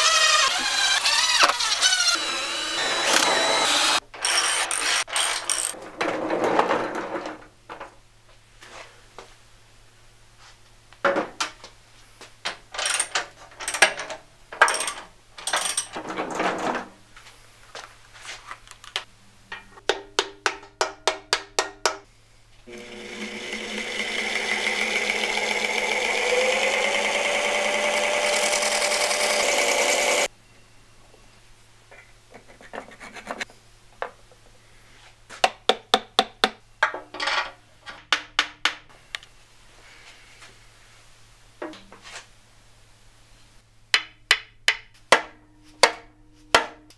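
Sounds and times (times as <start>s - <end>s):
benchtop lathe running: 0.0s - 5.8s, 22.7s - 30.3s
metal clinks and knocks: 12.8s - 16.6s.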